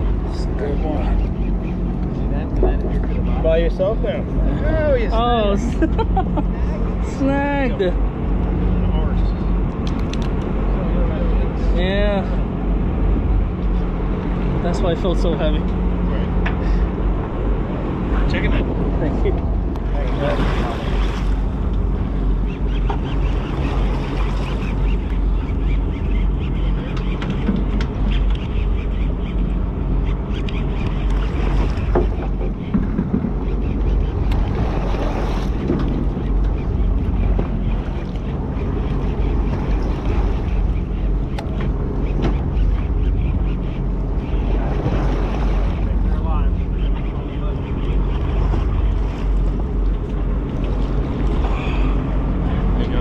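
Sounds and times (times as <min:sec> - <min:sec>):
boat engine droning: 0:00.0 - 0:53.0
sharp clicks: 0:09.8 - 0:10.5
wind on microphone: 0:15.5 - 0:53.0.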